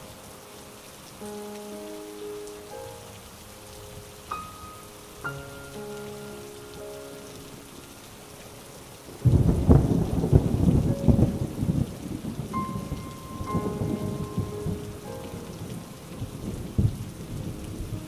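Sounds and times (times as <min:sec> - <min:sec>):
soft music with held notes: 0:00.0 - 0:18.0
steady rain: 0:00.0 - 0:18.0
thunder: 0:09.2 - 0:18.0.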